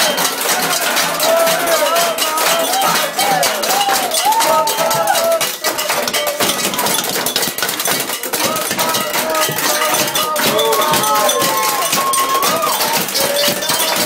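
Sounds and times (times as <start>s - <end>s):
high voices whooping: 0.0s - 5.5s, 10.3s - 14.0s
rapid metallic clattering: 0.0s - 14.0s.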